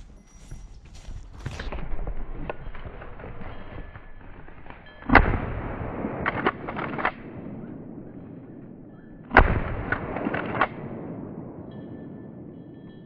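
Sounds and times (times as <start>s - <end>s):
shotgun shots: 5.0s - 8.7s, 9.3s - 11.7s.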